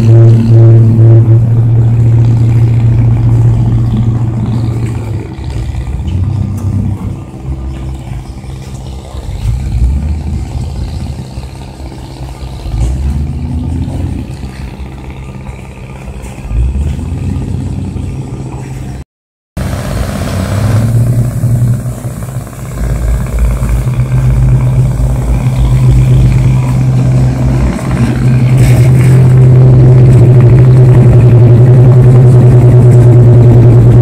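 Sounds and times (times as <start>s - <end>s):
boat diesel engine running: 0.0s - 19.0s, 19.6s - 34.0s
propeller churning water: 0.0s - 19.0s, 19.6s - 34.0s.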